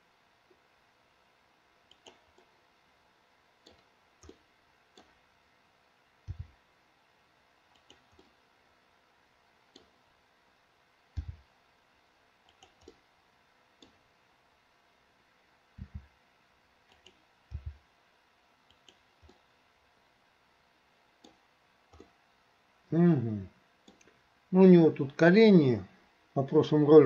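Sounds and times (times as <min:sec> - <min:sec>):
mouse and keyboard clicks: 0:01.9 - 0:02.5, 0:06.3 - 0:06.5, 0:07.8 - 0:08.4, 0:11.2 - 0:11.4, 0:12.5 - 0:13.0, 0:16.9 - 0:17.8, 0:18.7 - 0:19.4.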